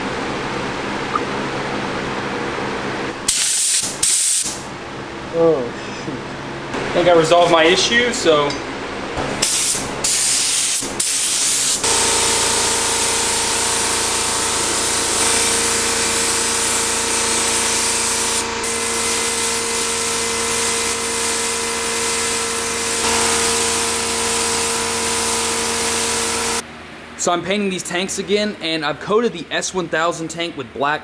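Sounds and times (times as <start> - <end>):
steady hum: 0.0 - 31.0
spray gun hissing: 3.3 - 4.6, 9.4 - 26.6.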